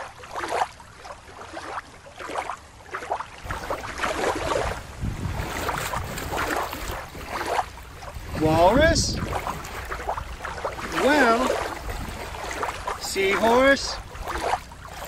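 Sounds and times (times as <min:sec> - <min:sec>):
water sloshing and lapping: 0:00.0 - 0:15.0
wind buffeting microphone: 0:03.4 - 0:15.0.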